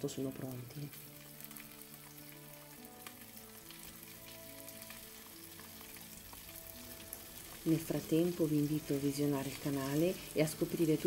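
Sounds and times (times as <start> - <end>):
prawns sizzling in oil: 0.0 - 11.0
quiet background music: 0.0 - 11.0.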